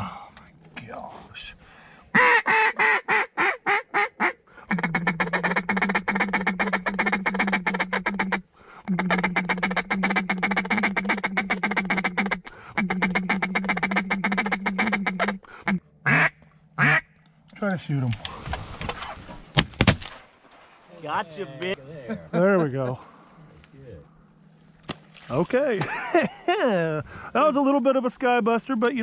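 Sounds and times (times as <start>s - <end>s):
duck call quacks: 2.1s - 17.1s.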